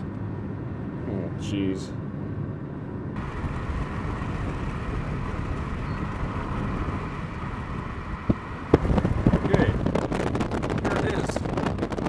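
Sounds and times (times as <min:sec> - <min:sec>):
road and wind noise inside car: 0:00.0 - 0:12.0.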